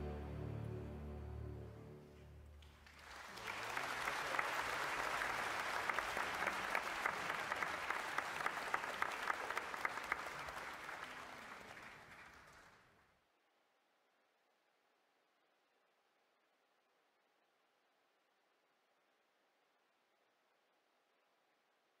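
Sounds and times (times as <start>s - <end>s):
crowd applauding: 2.0s - 13.0s.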